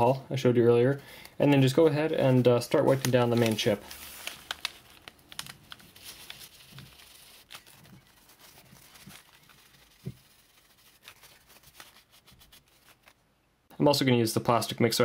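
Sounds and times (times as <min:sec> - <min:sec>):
paper filter rustling and rubbing: 0:01.6 - 0:13.2.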